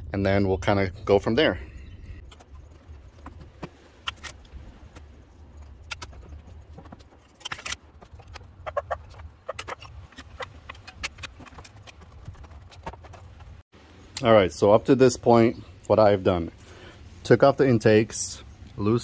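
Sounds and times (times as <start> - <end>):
hand tools clicking and rattling: 5.7 - 13.6.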